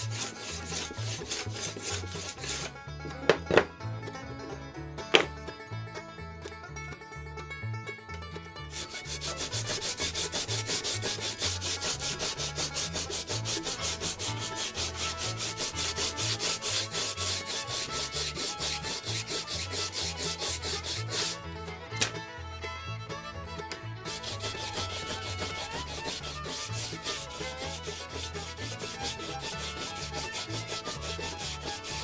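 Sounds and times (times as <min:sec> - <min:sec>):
sanding block rubbing: 0:00.0 - 0:02.7, 0:08.7 - 0:21.4, 0:24.1 - 0:32.0.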